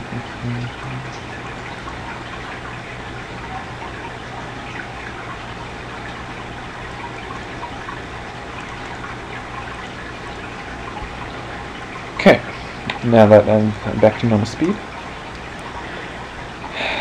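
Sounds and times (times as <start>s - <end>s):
constant low hum: 0.0s - 17.0s
steady hiss: 15.6s - 17.0s.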